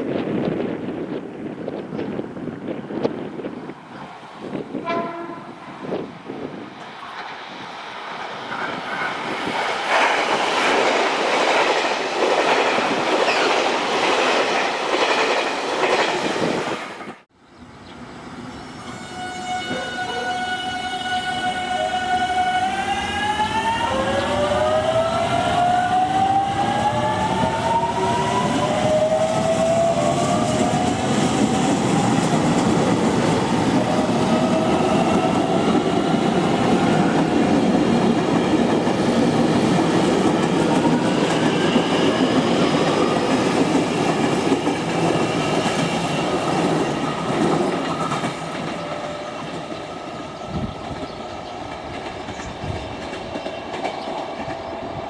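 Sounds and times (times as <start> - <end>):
wheels rumbling on rail: 23.2 - 55.0.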